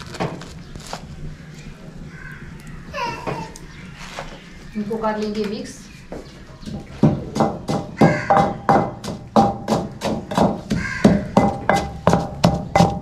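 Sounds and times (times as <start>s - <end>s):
pestle pounding in mortar: 6.6s - 13.0s.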